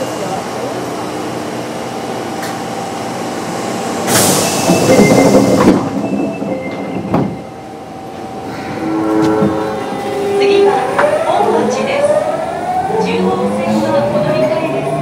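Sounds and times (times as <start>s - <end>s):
subway car equipment hum: 0.0s - 15.0s
sliding doors rushing shut: 4.0s - 7.5s.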